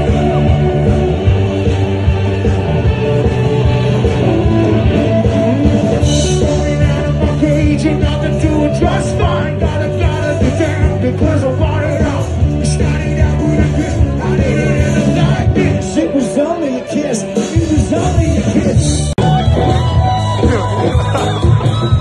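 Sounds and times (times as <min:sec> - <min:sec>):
steady drum beat: 0:00.0 - 0:16.3, 0:17.2 - 0:22.0
live rock band with singer: 0:00.0 - 0:22.0.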